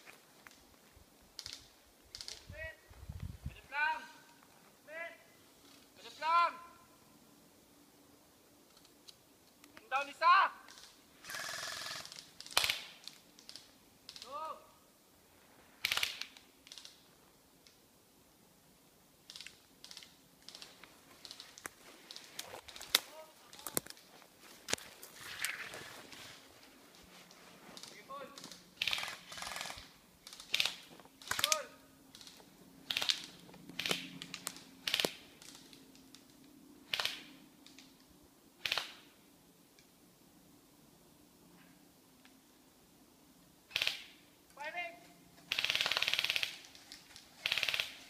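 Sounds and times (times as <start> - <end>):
footsteps through undergrowth: 20.5 - 28.6.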